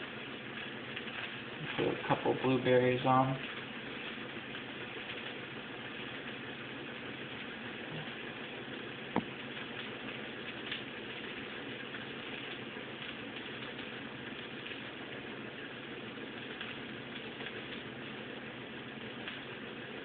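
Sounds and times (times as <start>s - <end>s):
room tone hiss and hum: 0.0s - 20.0s.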